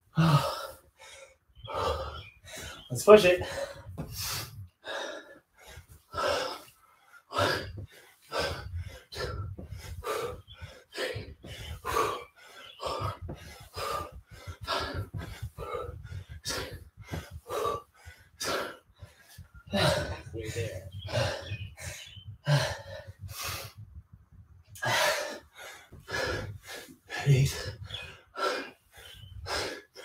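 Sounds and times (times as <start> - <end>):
man panting hard: 0.1 - 30.0.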